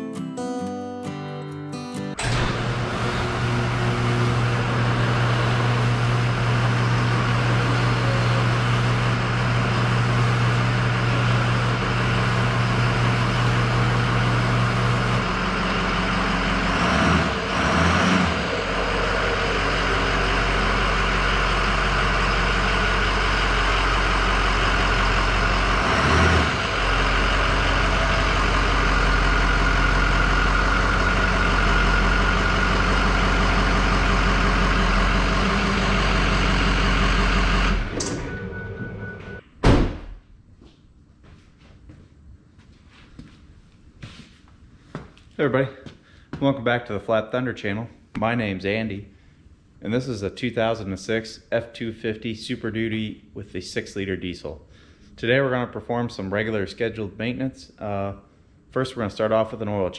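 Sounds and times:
diesel truck engine running: 2.2s - 39.4s
garage door opener humming: 2.2s - 39.6s.

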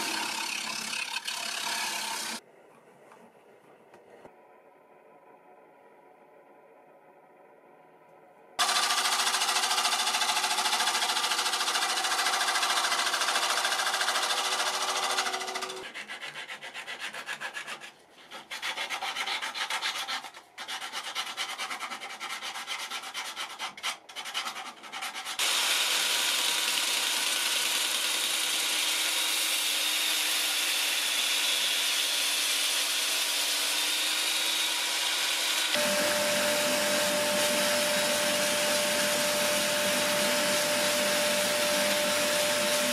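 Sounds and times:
gouge cutting on wood lathe: 0.0s - 2.4s, 8.6s - 15.9s, 25.4s - 42.9s
lathe humming: 33.8s - 42.9s
power sander whine: 33.9s - 42.9s
sanding hiss: 34.9s - 42.9s.

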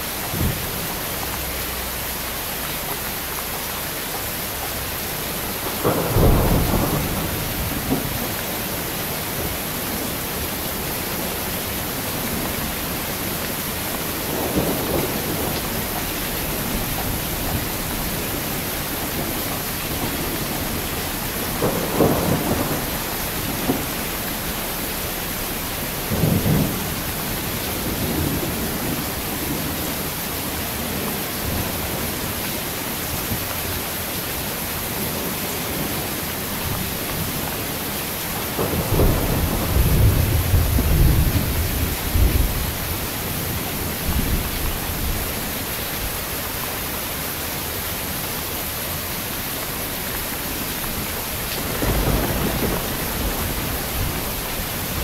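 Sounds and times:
heavy rain: 0.0s - 55.0s
thunder rumbling: 5.3s - 32.4s, 35.0s - 46.6s, 50.2s - 55.0s
thunder clap: 5.6s - 10.4s, 12.1s - 29.9s, 38.4s - 45.1s, 50.8s - 55.0s.

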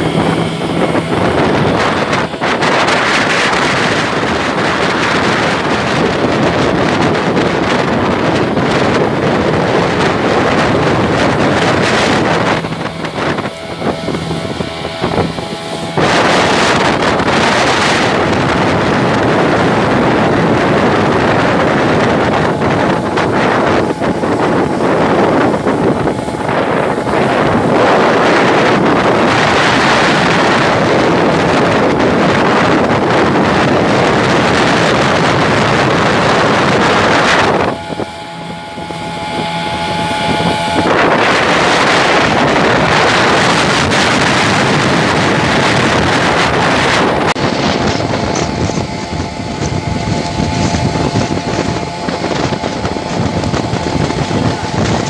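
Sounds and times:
motorboat engines running: 0.0s - 55.0s
water rushing along hull: 0.0s - 55.0s
wind buffeting microphone: 0.0s - 55.0s.

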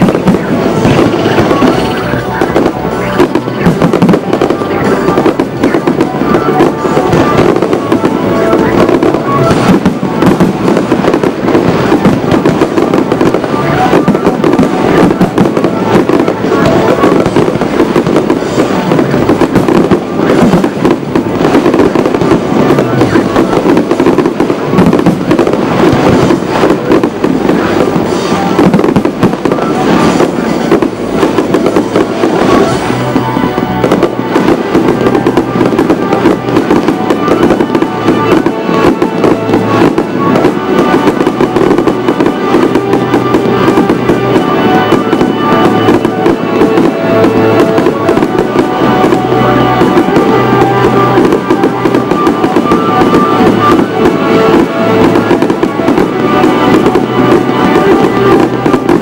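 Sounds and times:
fireworks bursts and crackling: 0.0s - 59.0s
loud music: 0.0s - 59.0s.

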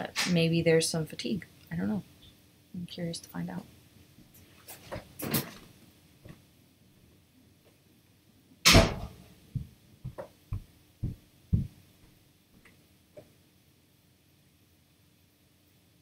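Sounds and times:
soft dull knocks: 9.6s - 11.8s.

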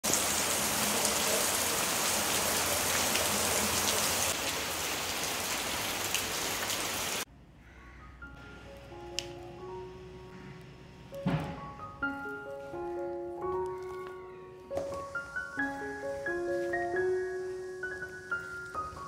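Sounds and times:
rain patter on ground and leaves: 0.0s - 7.3s.

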